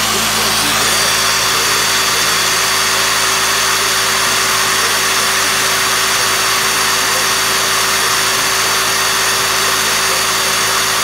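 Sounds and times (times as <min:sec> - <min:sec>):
high-pitched whine: 0:00.0 - 0:11.0
motor generator whirring: 0:00.0 - 0:11.0.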